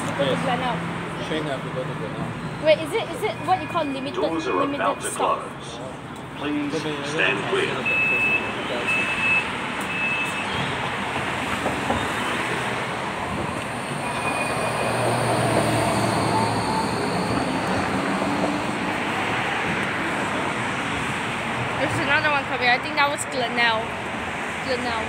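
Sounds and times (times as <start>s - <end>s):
door-closing beep: 7.9s - 10.7s, 11.8s - 12.3s, 14.0s - 14.8s
electric tram rumbling: 9.7s - 24.2s.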